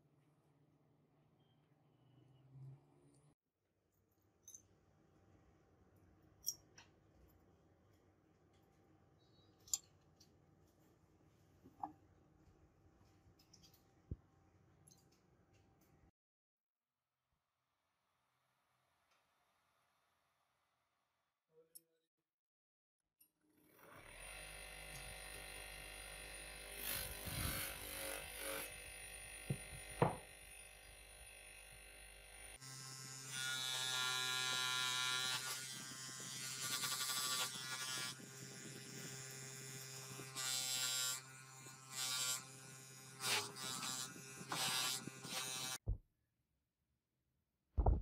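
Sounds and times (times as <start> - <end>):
bench grinder motor humming: 23.6 - 45.8.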